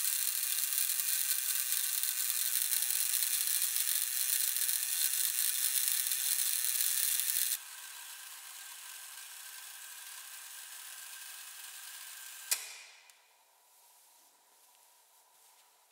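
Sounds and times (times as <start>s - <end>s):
clockwork gears whirring: 0.0s - 12.5s
sharp click: 12.5s - 13.2s.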